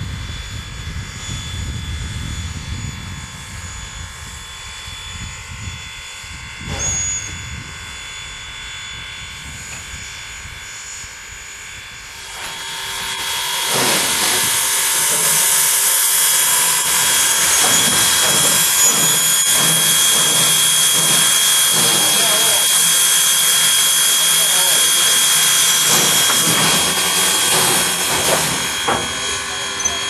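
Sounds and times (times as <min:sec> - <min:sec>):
steam locomotive hissing: 0:03.4 - 0:30.0
high whistling tones: 0:06.6 - 0:07.6, 0:12.4 - 0:30.0.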